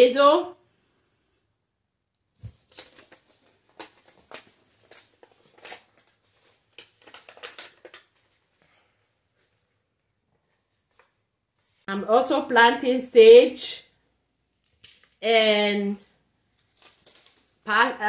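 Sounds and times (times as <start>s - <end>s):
paper packet crinkling: 2.4s - 8.5s, 14.7s - 17.7s.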